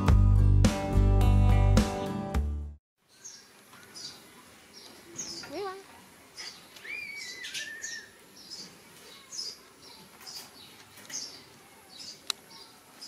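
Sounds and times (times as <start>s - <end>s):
small birds chirping: 3.0s - 13.0s.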